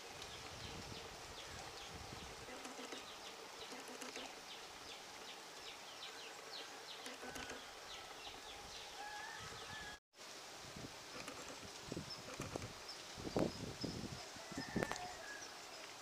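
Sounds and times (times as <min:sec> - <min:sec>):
small birds chirping: 0:00.2 - 0:09.0.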